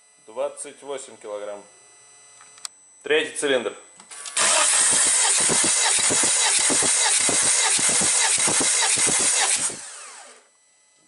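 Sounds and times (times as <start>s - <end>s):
engine cranking on starter: 4.1s - 10.4s.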